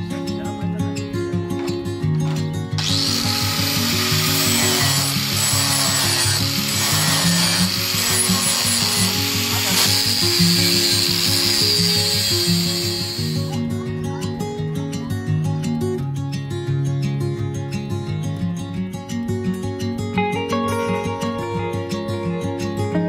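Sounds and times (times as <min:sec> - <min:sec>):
acoustic guitar music: 0:00.0 - 0:23.0
angle grinder grinding metal: 0:02.3 - 0:13.6.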